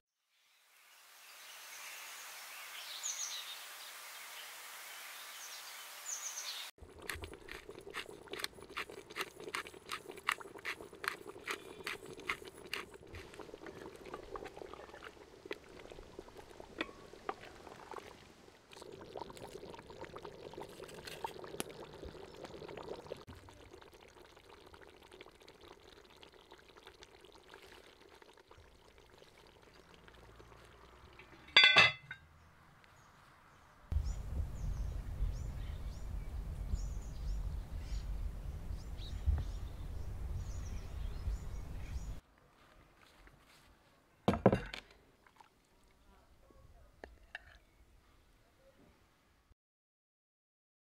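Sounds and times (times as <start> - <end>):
stew bubbling: 6.8 - 32.1, 44.7 - 46.3
pepper mill grinding: 6.9 - 13.5
cast-iron lid clank: 31.4 - 32.2.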